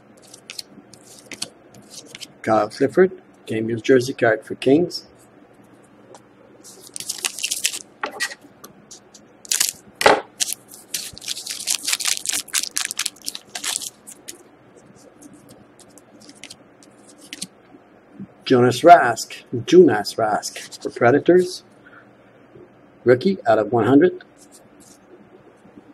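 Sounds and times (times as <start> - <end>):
foil pack crinkling and tearing: 6.7 - 7.9, 9.4 - 9.8, 10.4 - 14.4.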